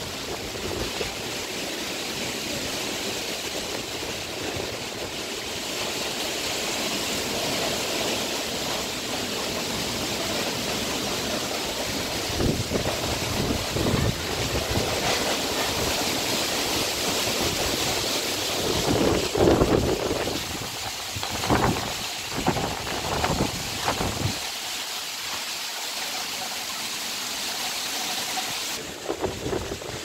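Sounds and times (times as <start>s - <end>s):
wind rushing through palm fronds: 0.0s - 30.0s
wind buffeting microphone: 12.0s - 16.0s, 17.4s - 24.4s, 28.8s - 30.0s.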